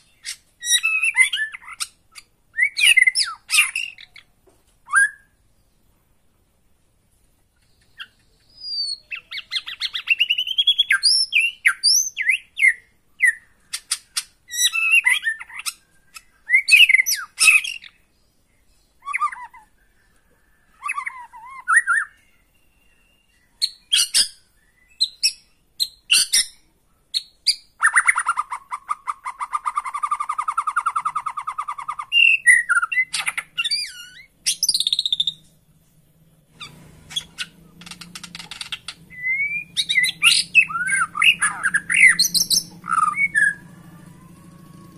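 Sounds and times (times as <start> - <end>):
bird singing whistled phrases: 0.1 - 1.9, 2.5 - 4.2, 4.9 - 5.4, 7.8 - 13.5, 14.5 - 18.0, 20.8 - 26.6, 27.2 - 35.4, 38.7 - 43.7
bird rattling trill: 36.6 - 44.9.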